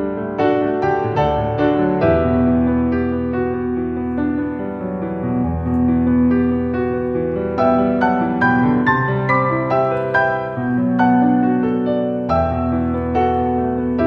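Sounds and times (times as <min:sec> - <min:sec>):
instrumental piano music: 0:00.0 - 0:14.0.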